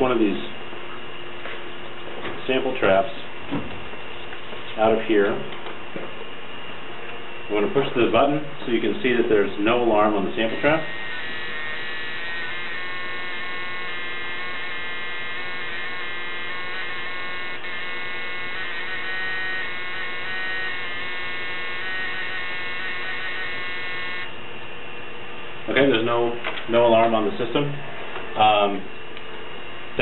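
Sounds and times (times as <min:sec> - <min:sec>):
high whine: 0:00.0 - 0:30.0
electric buzz: 0:07.5 - 0:26.4.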